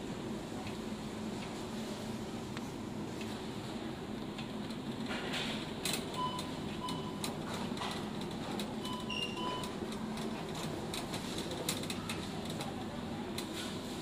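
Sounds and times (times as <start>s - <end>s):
store hum: 0.0s - 14.0s
shopping cart rolling and rattling: 7.1s - 12.8s
short electronic beeps: 8.9s - 9.7s.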